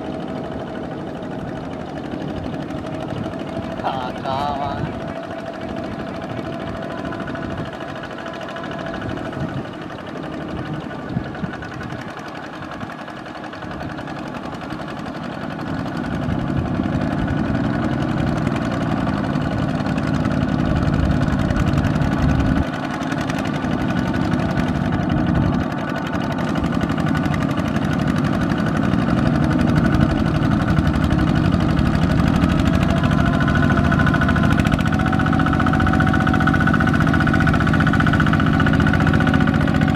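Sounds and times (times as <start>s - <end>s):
diesel walking tractor engines: 0.0s - 39.9s.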